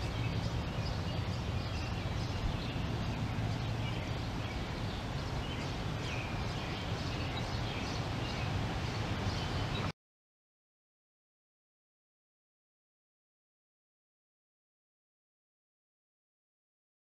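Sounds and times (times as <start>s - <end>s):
steady low hum: 0.0s - 9.9s.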